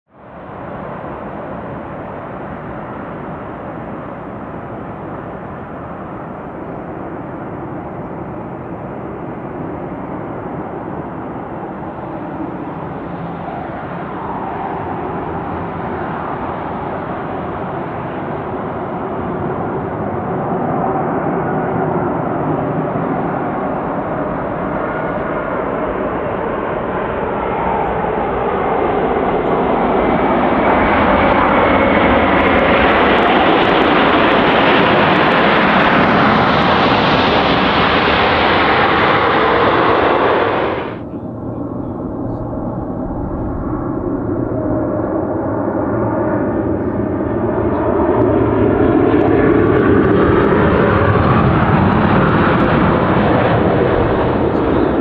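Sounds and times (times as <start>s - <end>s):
faint engine whine: 0.2s - 55.0s
jet engines rushing drone: 0.2s - 55.0s.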